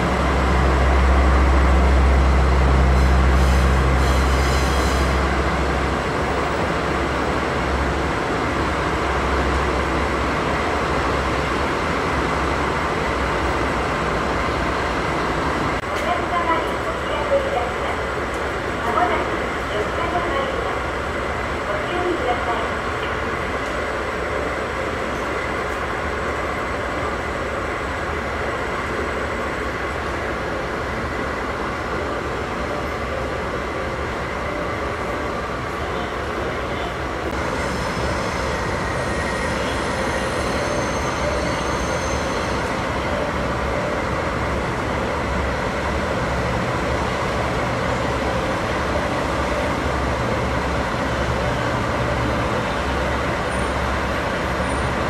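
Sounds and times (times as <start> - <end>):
high squeal: 37.5 - 42.8.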